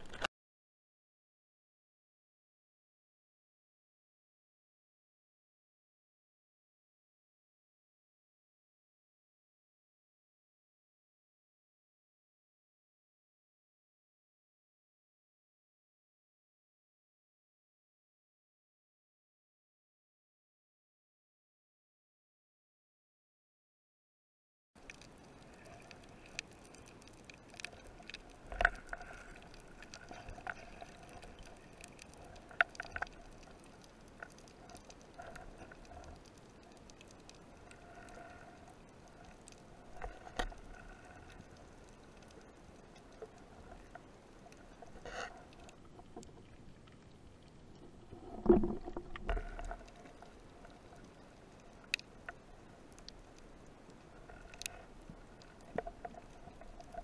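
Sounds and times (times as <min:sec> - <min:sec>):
faint underwater hiss: 0:24.8 - 0:45.8.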